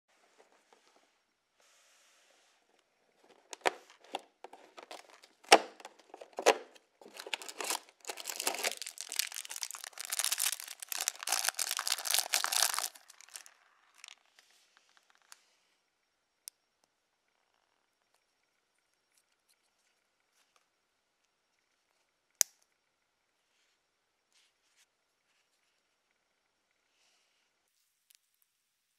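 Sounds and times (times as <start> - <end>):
plastic bag crinkling and tearing: 4.5 - 14.2.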